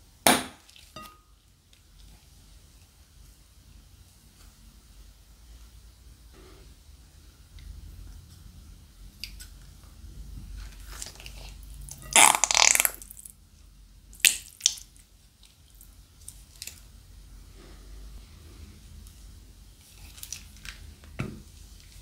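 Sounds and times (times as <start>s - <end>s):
slime squelching from plastic bag: 10.8s - 13.3s.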